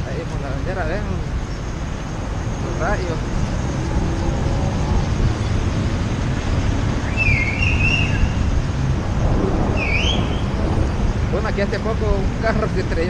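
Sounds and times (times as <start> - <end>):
wet-road traffic noise: 0.0 - 13.0
wind rumble on microphone: 0.0 - 13.0
high squeal: 7.0 - 8.6, 9.3 - 11.2.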